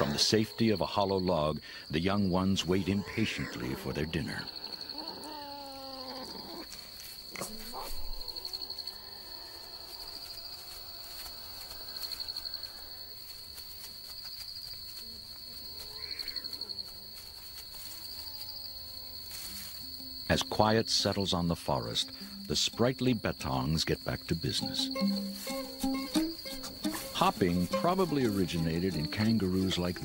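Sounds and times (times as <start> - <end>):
crickets trilling: 0.0 - 30.0
faint whining animal calls: 2.7 - 13.2, 15.5 - 16.8, 17.8 - 19.5.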